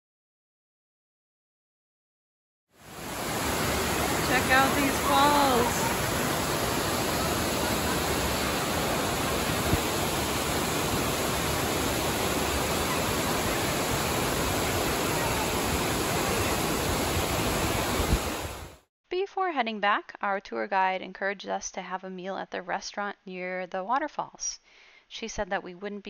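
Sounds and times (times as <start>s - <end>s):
water rushing down waterfalls: 2.8s - 18.8s.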